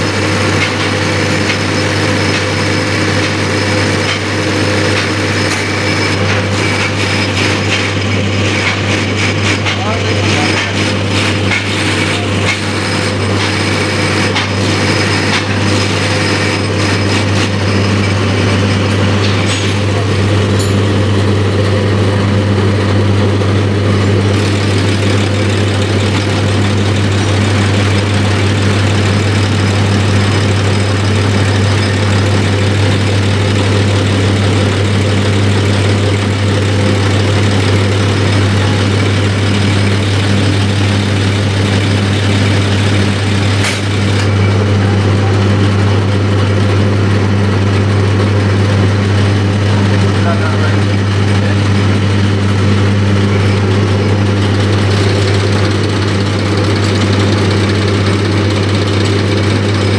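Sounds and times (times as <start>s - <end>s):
machine hum and whir: 0.0s - 59.9s.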